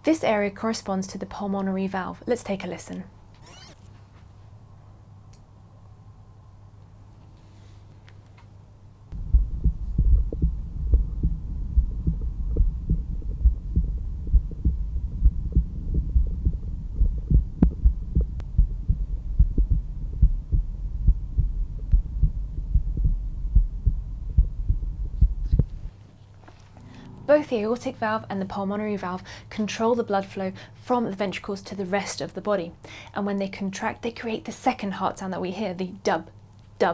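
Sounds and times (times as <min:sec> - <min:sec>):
heartbeat through stethoscope: 0:09.1 - 0:25.9.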